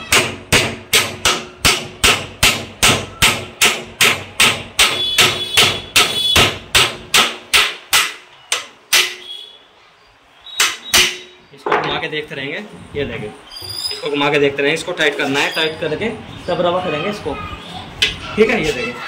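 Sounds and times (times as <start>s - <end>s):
hammer striking steel rod: 0.0s - 9.3s, 10.6s - 11.4s.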